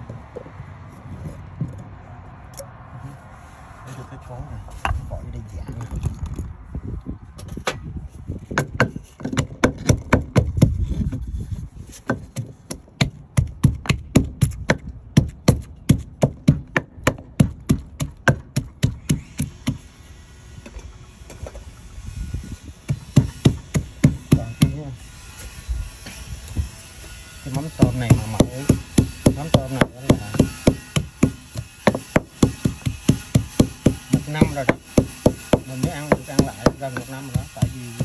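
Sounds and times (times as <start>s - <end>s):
wooden pestle pounding in mortar: 8.5s - 10.9s, 12.0s - 19.8s, 22.9s - 24.8s, 27.5s - 38.0s.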